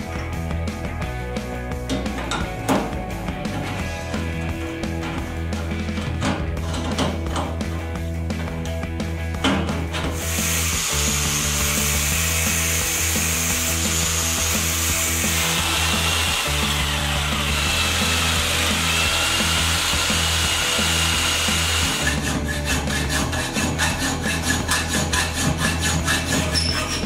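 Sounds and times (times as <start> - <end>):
jigsaw cutting metal: 9.9 - 27.0
hand tool rasping on metal: 10.1 - 27.0.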